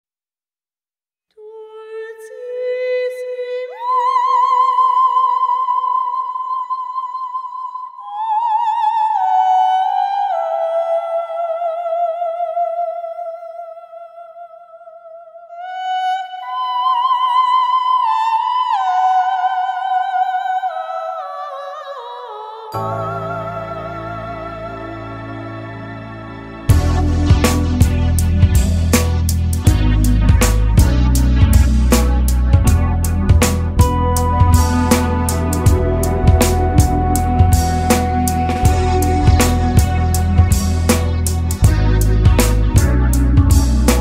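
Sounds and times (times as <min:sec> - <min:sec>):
high wordless melody with vibrato: 0:22.6 - 0:44.0
backing music with low notes: 0:22.8 - 0:44.0.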